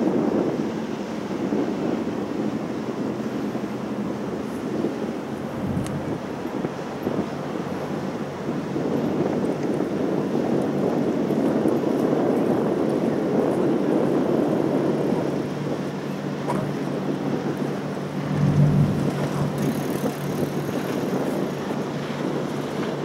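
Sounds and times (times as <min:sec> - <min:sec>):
water: 0:00.0 - 0:23.0
wind: 0:00.0 - 0:23.0
low hum: 0:16.4 - 0:20.9.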